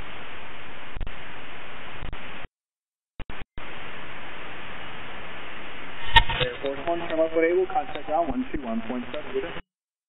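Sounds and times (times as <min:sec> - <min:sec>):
radio static hiss: 0:00.0 - 0:02.5, 0:03.2 - 0:09.8
short radio blips: 0:05.9 - 0:09.6.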